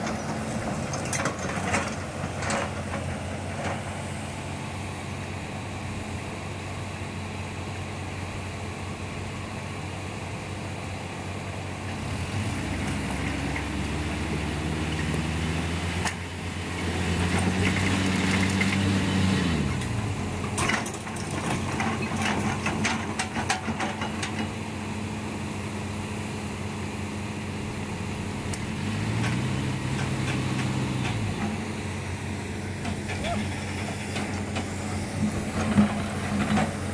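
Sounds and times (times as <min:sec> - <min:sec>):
clattering knocks and scrapes: 0:00.0 - 0:03.9, 0:28.8 - 0:31.7, 0:32.7 - 0:36.9
diesel engines running: 0:00.0 - 0:36.9.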